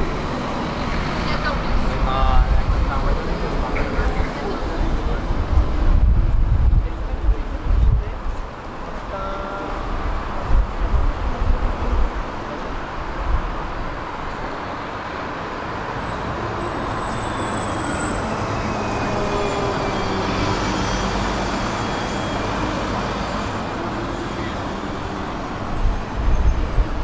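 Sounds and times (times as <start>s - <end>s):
tram wheels rumbling on rails: 0.0s - 27.0s
high-pitched squeal: 15.8s - 27.0s.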